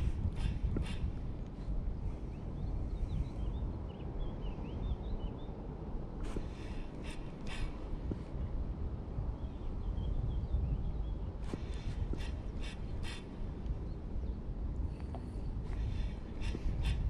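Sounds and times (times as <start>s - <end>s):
wind rumbling on microphone: 0.0s - 17.0s
small birds chirping: 9.4s - 17.0s.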